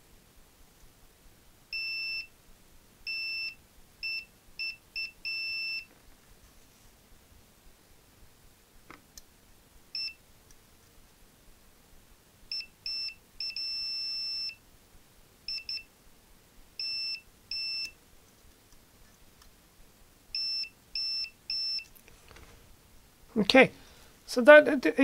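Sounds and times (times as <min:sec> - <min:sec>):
multimeter continuity beeps: 0:01.7 - 0:02.3, 0:03.1 - 0:05.9, 0:10.0 - 0:10.2, 0:12.5 - 0:14.6, 0:15.5 - 0:15.9, 0:16.8 - 0:18.0, 0:20.3 - 0:21.9.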